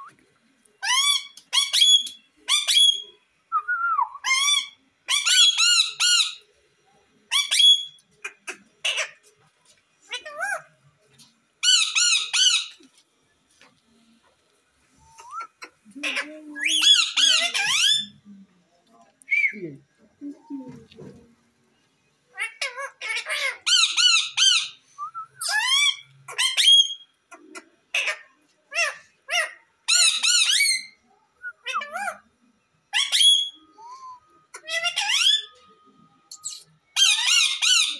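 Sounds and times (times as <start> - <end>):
parakeets squawking: 7.3 - 9.2, 15.2 - 18.2, 22.4 - 24.8, 34.5 - 35.6, 36.4 - 37.9.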